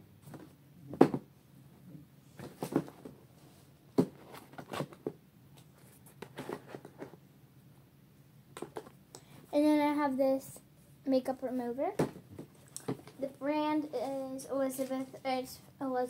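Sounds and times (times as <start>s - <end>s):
plastic containers knocking: 8.6s - 9.0s.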